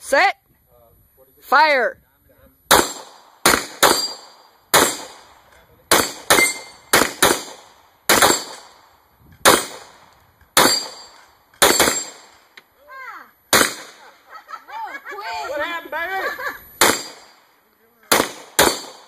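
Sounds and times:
handgun fire: 0:02.7 - 0:05.3, 0:05.9 - 0:08.8, 0:09.4 - 0:10.0, 0:10.6 - 0:12.3, 0:13.5 - 0:14.0, 0:16.8 - 0:17.4, 0:18.1 - 0:19.0
steel target ringing: 0:06.0 - 0:06.9, 0:10.6 - 0:12.2.

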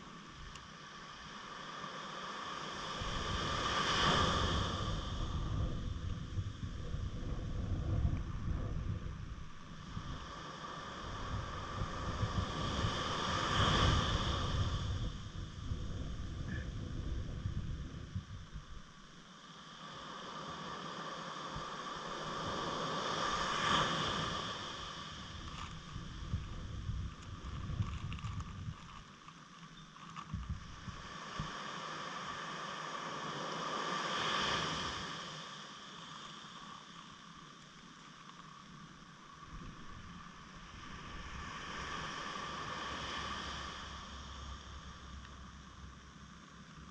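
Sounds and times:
noisy hiss: 0:00.0 - 0:46.9
wind rumbling on microphone: 0:02.5 - 0:19.2, 0:19.9 - 0:31.9, 0:39.3 - 0:46.9.

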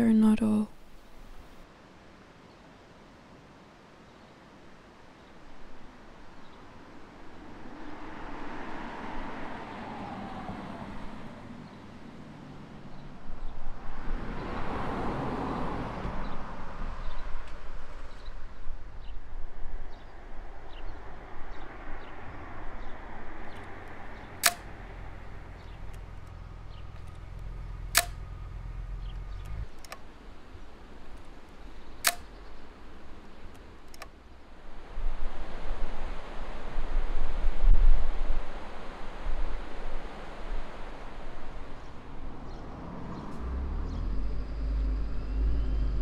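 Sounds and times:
vehicle passing: 0:07.4 - 0:18.0, 0:20.2 - 0:31.2, 0:42.0 - 0:46.0
camera shutter clicks: 0:24.4 - 0:24.6, 0:28.0 - 0:28.2, 0:32.0 - 0:32.3.

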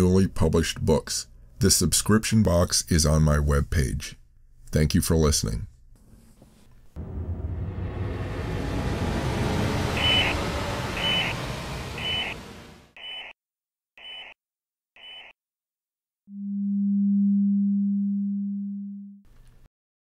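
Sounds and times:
long low steady tone: 0:07.0 - 0:12.9, 0:16.3 - 0:19.2
rumbling electronic music: 0:07.0 - 0:13.0.

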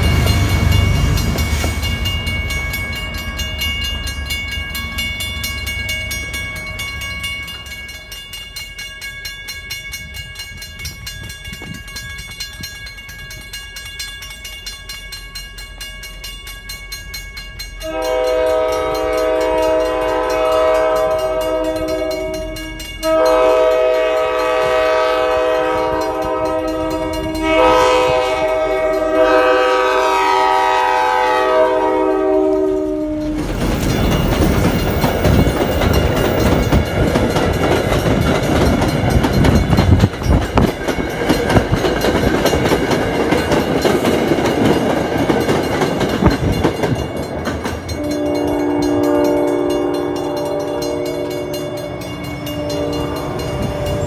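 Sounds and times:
diesel train rumble: 0:00.0 - 0:54.0
level crossing warning bell: 0:00.0 - 0:54.0
train horn long blasts: 0:17.8 - 0:33.5, 0:47.9 - 0:54.0.

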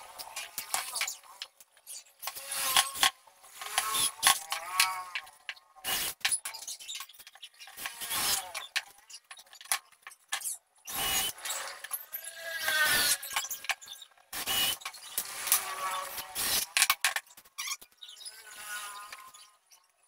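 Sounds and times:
cordless drill whining: 0:10.9 - 0:11.6.

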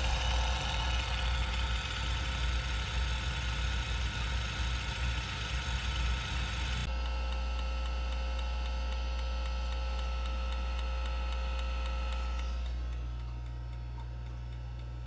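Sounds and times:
faint high whine: 0:00.0 - 0:09.7
hard drive and fan whir: 0:00.0 - 0:15.0
steady low hum: 0:00.0 - 0:15.0.

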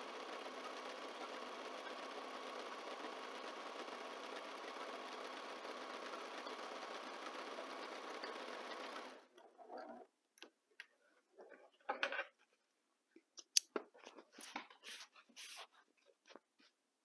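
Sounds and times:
fabric rustling: 0:14.0 - 0:16.8.

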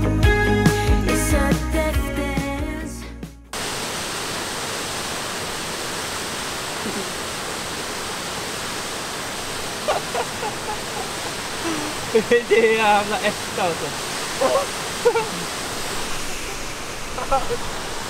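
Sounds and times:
background music: 0:00.0 - 0:03.5
waterfall rushing: 0:03.6 - 0:18.0.

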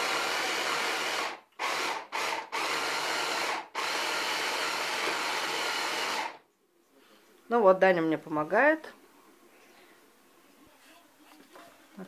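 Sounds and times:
electric hand blender running: 0:00.0 - 0:06.4.

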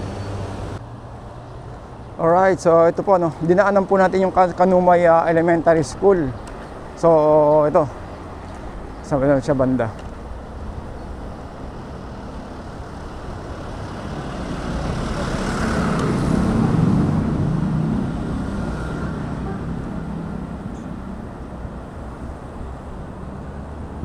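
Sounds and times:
street noise: 0:00.0 - 0:24.0
car passing close by: 0:12.0 - 0:22.1.

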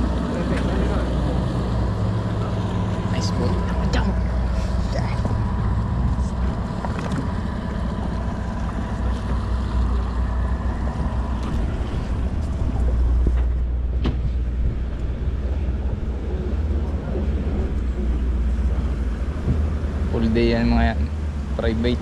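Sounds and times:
boat engines idling: 0:00.0 - 0:22.0
wind on microphone: 0:03.0 - 0:20.1.

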